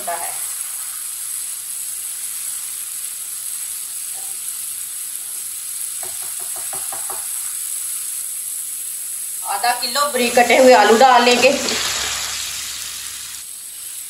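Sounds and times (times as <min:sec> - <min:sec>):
paste sizzling in a frying pan: 0:00.0 - 0:14.0
spatula knocking on pan: 0:06.0 - 0:07.3.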